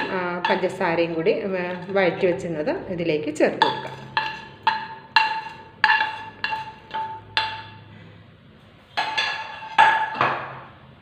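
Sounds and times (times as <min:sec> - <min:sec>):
metal pan knocking with ringing tone: 0:03.6 - 0:07.8.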